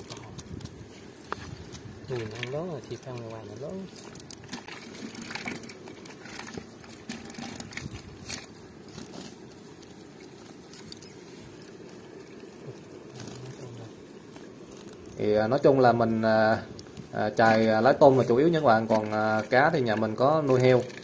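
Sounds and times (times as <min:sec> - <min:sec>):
light clicks and crackles: 0:00.0 - 0:15.2
net and grass rustling: 0:00.0 - 0:21.0.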